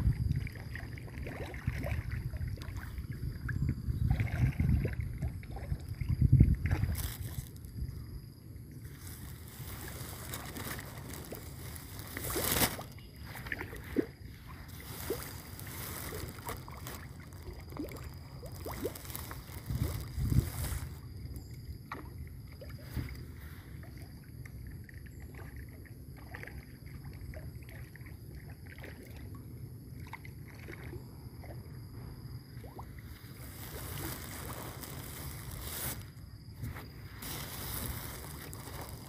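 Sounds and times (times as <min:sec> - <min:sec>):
wind noise on microphone: 0:00.0 - 0:21.5, 0:22.8 - 0:23.8, 0:32.0 - 0:39.0.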